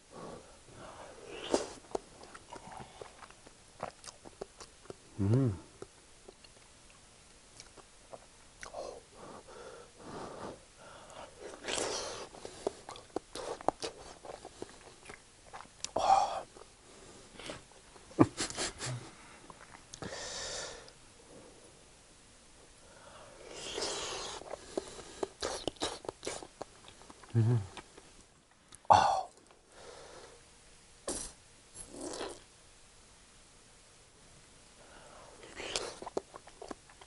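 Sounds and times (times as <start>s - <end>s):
person chewing: 1.5s - 5.0s, 7.6s - 8.9s, 11.4s - 16.7s, 23.5s - 28.0s, 31.1s - 32.4s, 35.4s - 37.0s
breaths: 9.1s - 12.8s, 18.9s - 21.7s, 22.8s - 25.4s, 29.7s - 30.4s, 34.8s - 35.4s.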